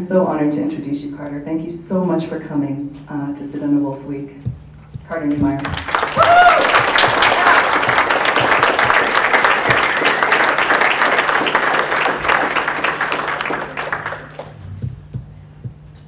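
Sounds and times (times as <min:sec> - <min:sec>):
audience applause: 0:05.6 - 0:14.6.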